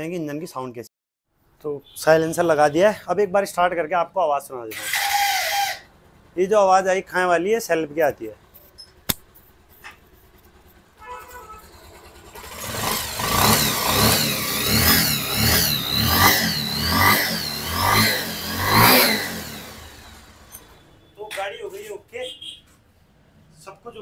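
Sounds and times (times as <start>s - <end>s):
motorcycle engine revving: 8.9s - 20.8s.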